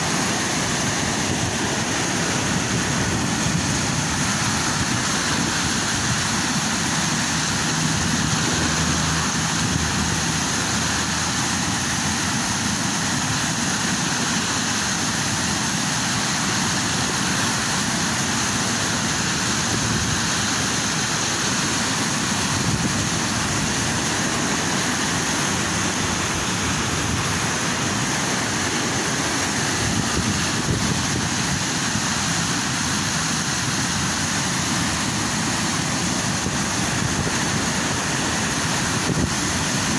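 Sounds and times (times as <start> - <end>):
floodwater rushing: 0.0 - 39.9.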